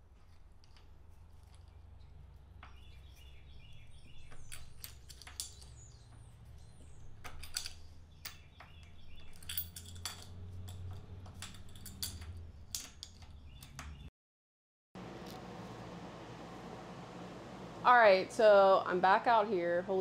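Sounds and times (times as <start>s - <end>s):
bird chirps: 2.7s - 4.8s, 8.1s - 9.5s
low steady hum: 15.0s - 20.0s.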